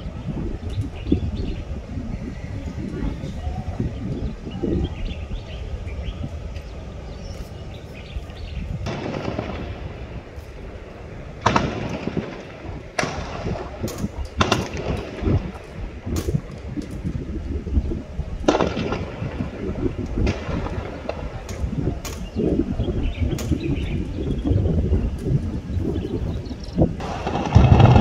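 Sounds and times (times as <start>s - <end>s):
low rumble: 0.0s - 28.0s
distant gunshots echoing: 8.8s - 16.4s, 18.5s - 21.8s, 27.0s - 28.0s.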